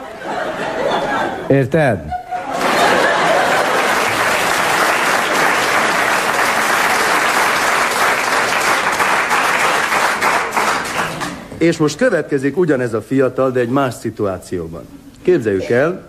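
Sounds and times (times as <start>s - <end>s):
audience applause: 2.5s - 11.4s.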